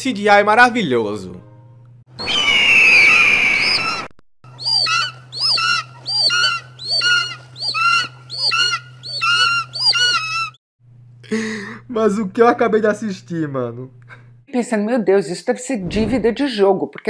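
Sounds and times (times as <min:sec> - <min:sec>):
loud bird screech: 0:02.2 - 0:10.6
squawking bird call: 0:02.2 - 0:10.6
low steady hum: 0:04.9 - 0:14.5.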